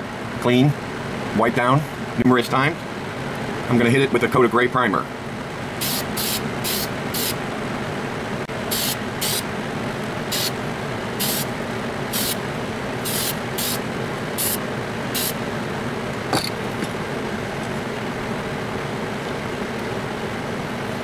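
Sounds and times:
steady background noise: 0:00.0 - 0:21.0
aerosol spray can hissing: 0:05.8 - 0:07.4, 0:08.7 - 0:09.4, 0:10.3 - 0:10.6, 0:11.2 - 0:11.5, 0:12.1 - 0:12.4, 0:13.0 - 0:13.8, 0:14.4 - 0:15.4.

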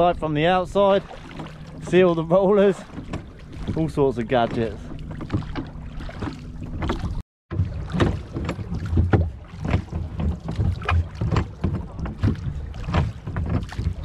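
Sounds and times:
oars splashing: 0:00.0 - 0:14.0.

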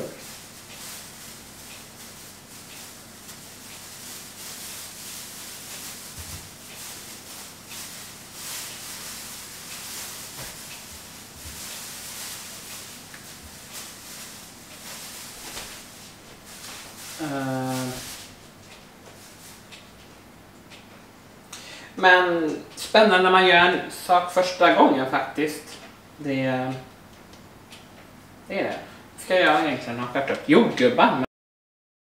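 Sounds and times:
steady hiss: 0:00.0 - 0:19.8.

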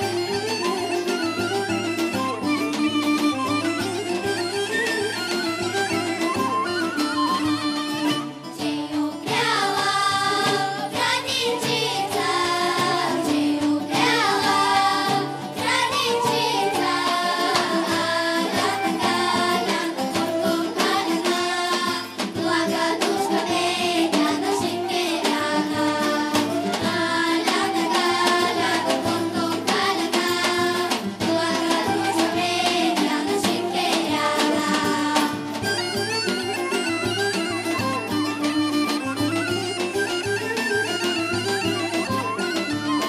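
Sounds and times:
plucked string instrument: 0:00.0 - 0:43.0
children's choir singing folk song: 0:08.4 - 0:36.4.

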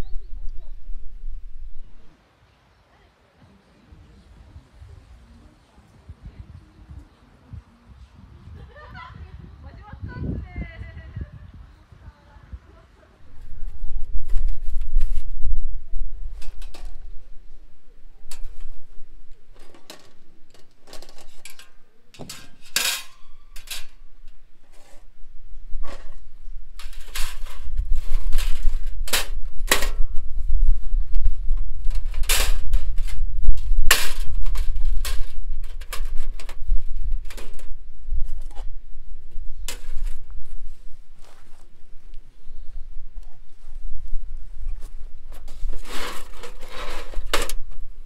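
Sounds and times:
low rumble: 0:00.0 - 0:02.1
cookware and utensils clinking: 0:19.5 - 0:24.1.

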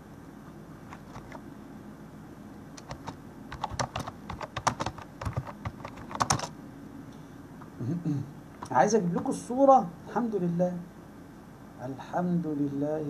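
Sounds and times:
keyboard typing: 0:00.9 - 0:01.4, 0:02.8 - 0:06.5.

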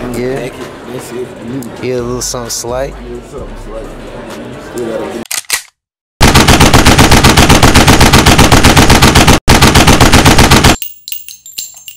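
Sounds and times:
machine-gun fire: 0:06.2 - 0:10.8.

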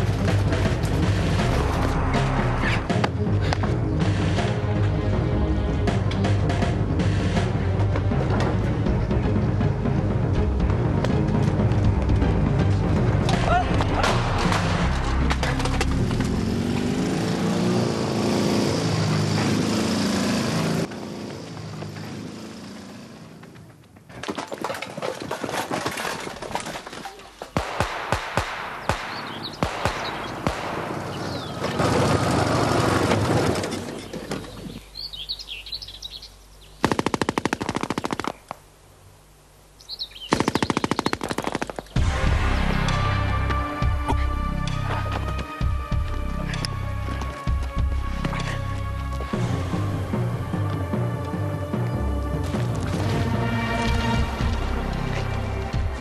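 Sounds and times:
motorcycle engine running: 0:14.2 - 0:23.8
birds chirping faintly: 0:33.6 - 0:42.0
machine gun bursts: 0:36.8 - 0:38.4, 0:40.3 - 0:41.9.

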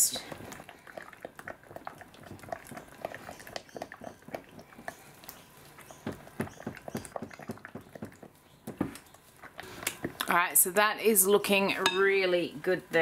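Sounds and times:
cream squelching while stirred: 0:00.0 - 0:10.3.

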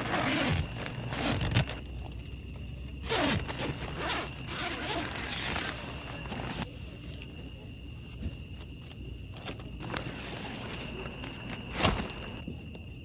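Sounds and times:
tent zipper being pulled: 0:00.0 - 0:01.8, 0:03.0 - 0:06.6, 0:09.8 - 0:12.4.

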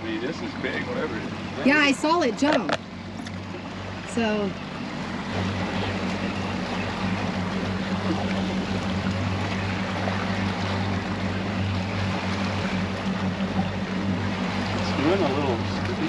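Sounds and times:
outboard motors humming: 0:00.0 - 0:16.0
water washing past hull: 0:00.0 - 0:16.0
wind: 0:00.0 - 0:16.0.

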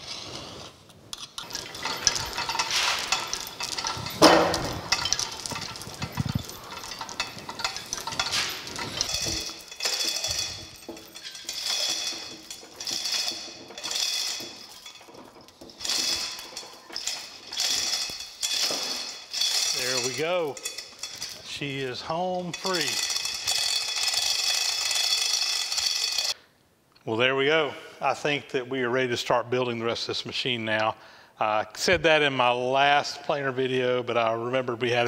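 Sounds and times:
lifting chains clinking and rattling: 0:01.1 - 0:26.4
metallic clank: 0:01.2 - 0:26.4.

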